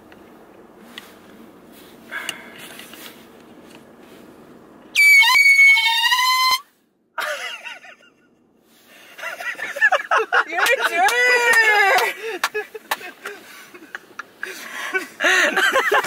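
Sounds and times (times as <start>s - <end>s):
wavering cry: 5.0s - 6.6s.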